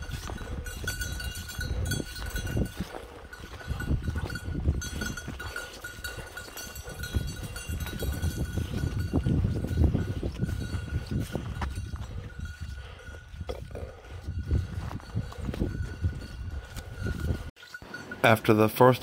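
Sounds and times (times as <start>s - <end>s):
footsteps on gravel: 0.0s - 13.2s
dog bell ringing: 0.0s - 13.4s, 14.3s - 19.0s.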